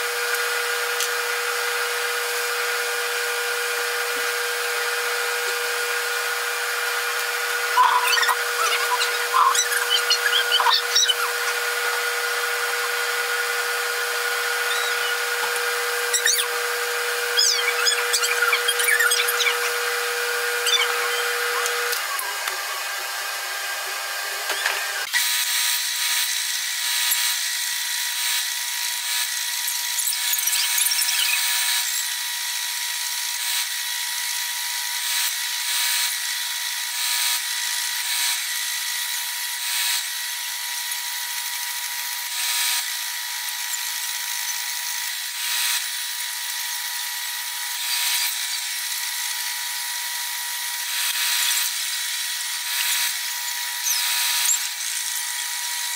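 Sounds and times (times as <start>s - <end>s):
belt sander running: 0.0s - 30.0s, 31.4s - 55.9s
steel grinding on sanding belt: 2.0s - 22.0s, 37.0s - 55.9s.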